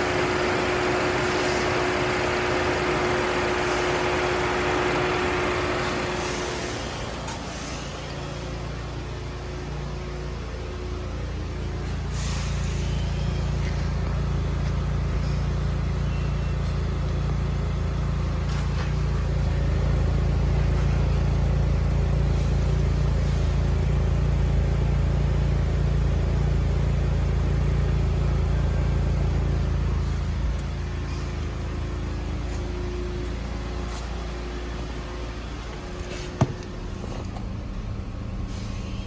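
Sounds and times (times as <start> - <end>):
car engine idling: 0.0 - 39.0.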